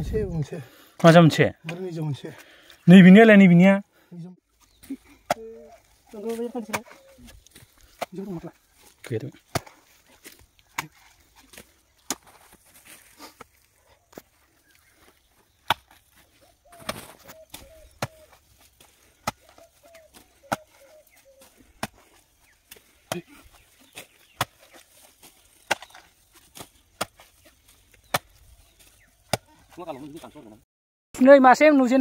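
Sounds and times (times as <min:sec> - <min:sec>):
sharp chopping knocks: 0:25.7 - 0:26.0.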